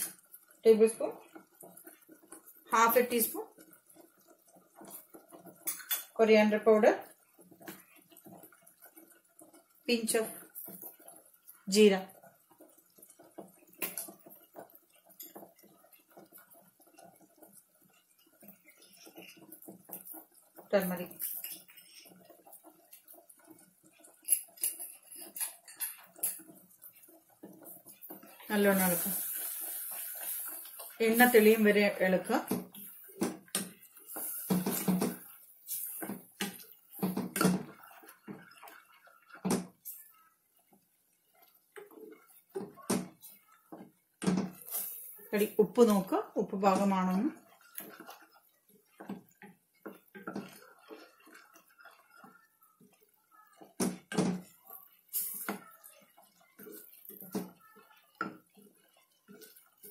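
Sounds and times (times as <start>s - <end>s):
spatula scraping a pan: 6.9s - 59.9s.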